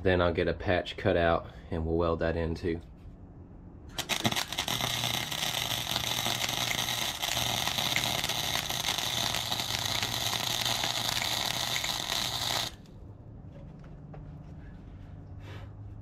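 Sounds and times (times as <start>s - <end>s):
welding arc crackling: 3.9s - 12.9s.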